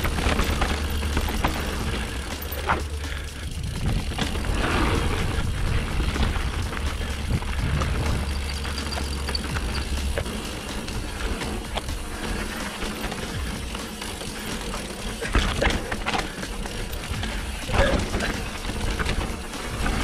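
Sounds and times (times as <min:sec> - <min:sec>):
bike clicks and rattles: 0:00.0 - 0:20.0
bike tyre noise: 0:00.0 - 0:20.0
wind rumbling on microphone: 0:01.9 - 0:12.3.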